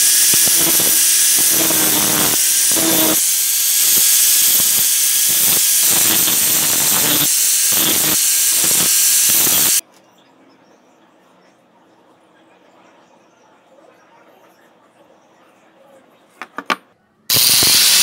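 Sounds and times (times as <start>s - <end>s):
angle grinder grinding steel: 0.0s - 9.8s, 17.3s - 18.0s.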